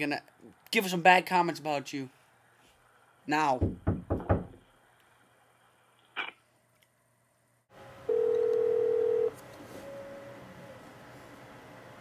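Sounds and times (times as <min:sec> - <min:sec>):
phone ringing tone: 0:08.1 - 0:10.1.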